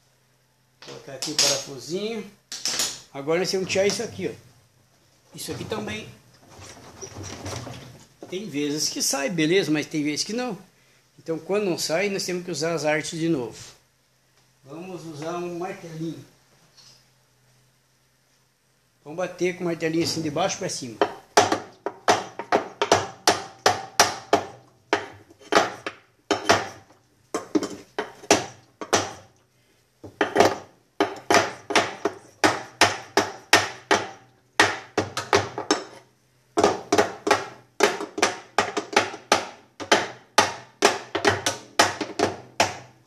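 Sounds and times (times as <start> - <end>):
small hammer knocking on metal: 21.0 - 26.8, 36.6 - 42.9.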